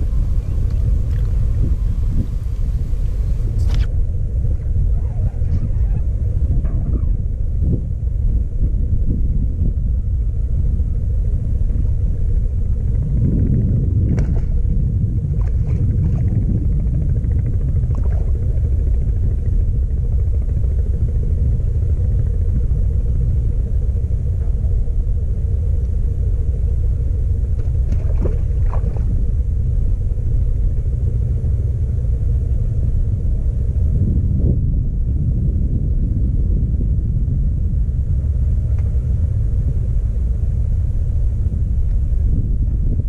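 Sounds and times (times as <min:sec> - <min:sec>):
wind buffeting microphone: 0:00.0 - 0:43.0.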